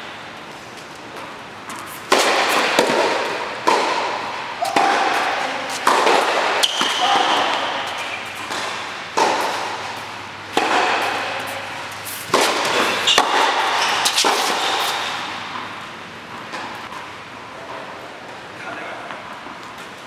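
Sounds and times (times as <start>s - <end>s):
tennis ball hits echoing: 2.1s - 11.5s, 12.3s - 17.0s.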